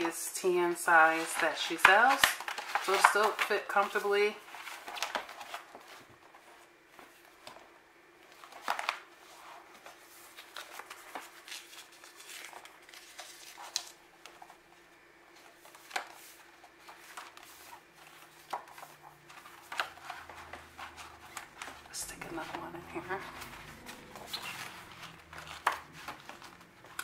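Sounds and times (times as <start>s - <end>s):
paper rustling: 0.8s - 27.0s.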